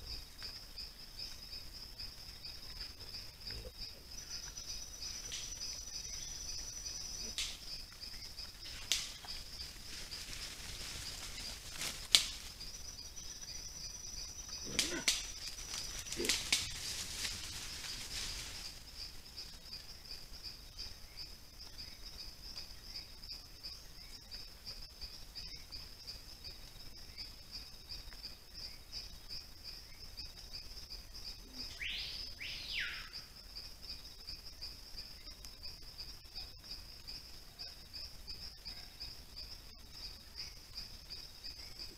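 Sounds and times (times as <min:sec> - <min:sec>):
insect trill: 0:00.0 - 0:41.9
animals moving through leaf litter: 0:08.7 - 0:12.6, 0:15.1 - 0:19.0.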